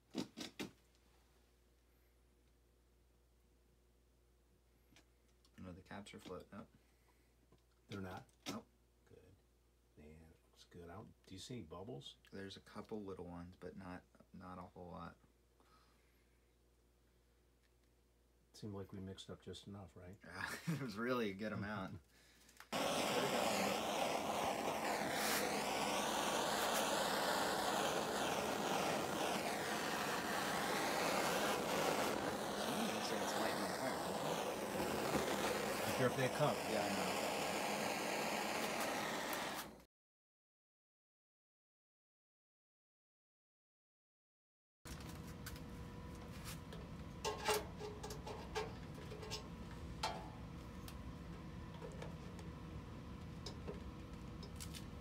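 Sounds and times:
heat tool blowing: 22.6 - 39.9
steady hum: 22.8 - 39.7.

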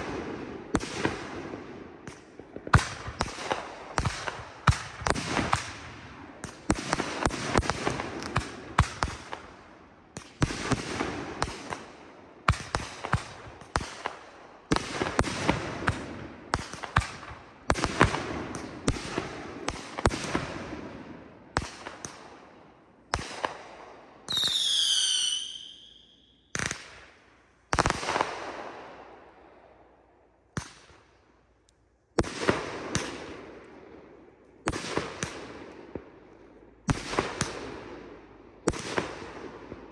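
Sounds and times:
falling firework whistle: 24.3 - 26.4.

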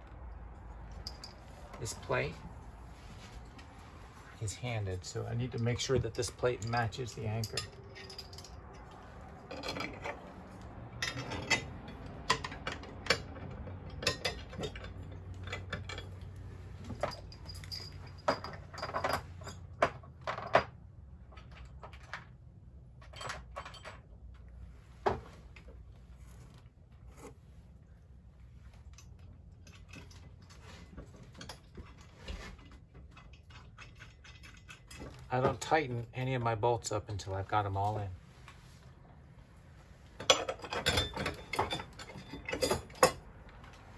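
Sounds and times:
metal nuts clinking on bolts: 0.8 - 2.2, 5.0 - 20.8, 23.0 - 24.4, 33.1 - 36.1, 40.2 - 43.9.

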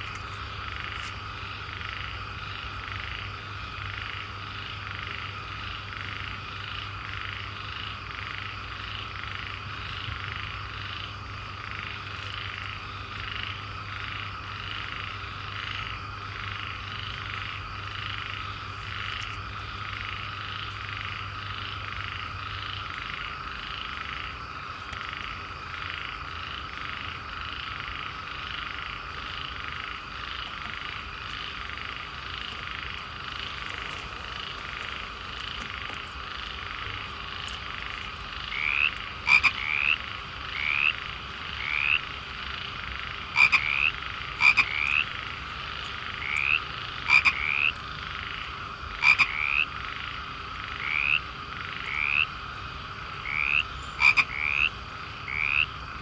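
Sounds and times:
chorus of frogs croaking: 0.0 - 56.0.

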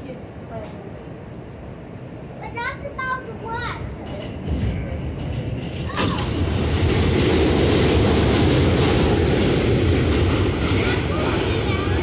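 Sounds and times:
subway car rumbling on track: 0.0 - 12.0.

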